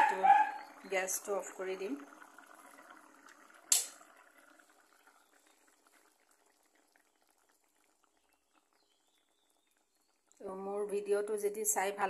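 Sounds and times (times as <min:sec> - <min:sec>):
curry bubbling in a wok: 0:00.1 - 0:12.0
gas burner switching off: 0:03.6 - 0:04.0.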